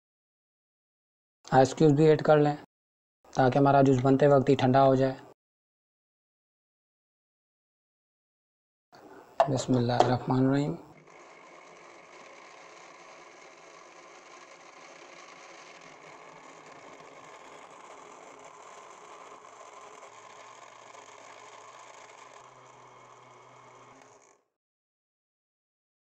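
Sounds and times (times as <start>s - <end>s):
blender motor running: 10.8s - 24.5s.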